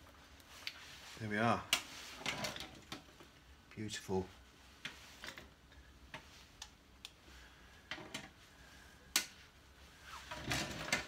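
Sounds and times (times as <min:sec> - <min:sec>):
rustling: 0:00.0 - 0:03.5.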